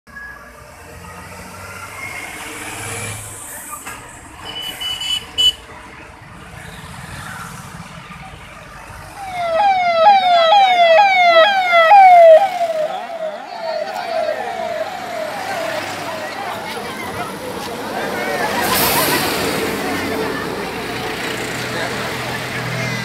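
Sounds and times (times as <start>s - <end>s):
road traffic rumble: 0.1s - 23.0s
vehicle siren rising sweeps: 9.1s - 17.5s.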